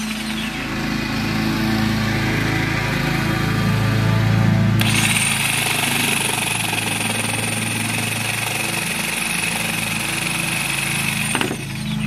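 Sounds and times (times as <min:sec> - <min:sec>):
jigsaw cutting decking board: 0:04.8 - 0:12.0.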